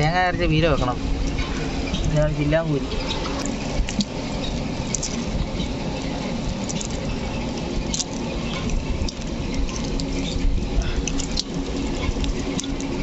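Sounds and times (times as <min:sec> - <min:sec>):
steady low rumble: 0:00.0 - 0:13.0
fish flapping on wet net: 0:03.1 - 0:13.0.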